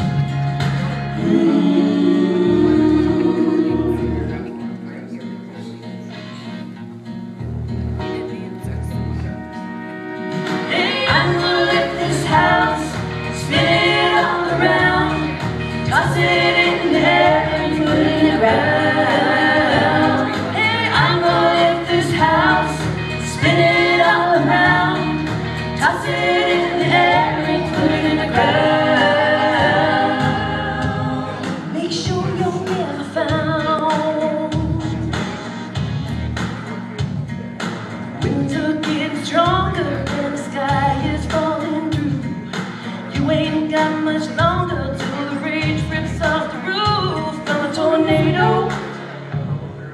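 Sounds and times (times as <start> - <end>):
women singing in harmony: 1.2 - 4.4, 10.5 - 35.1, 38.2 - 42.4, 43.1 - 49.0.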